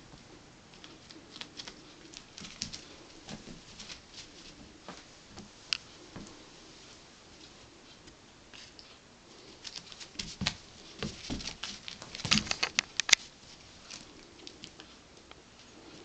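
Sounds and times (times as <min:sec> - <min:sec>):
cat paws scrabbling on rug: 0:00.8 - 0:05.5, 0:09.6 - 0:14.9.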